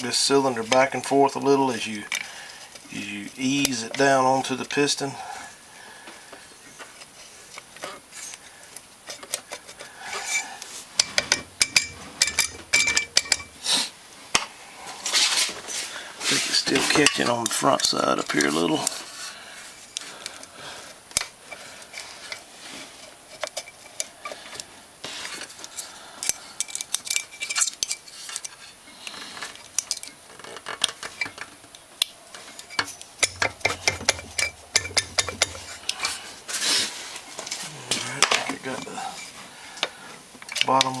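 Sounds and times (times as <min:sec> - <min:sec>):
metal clicks and scrapes: 0:16.2 - 0:19.2, 0:19.9 - 0:41.0.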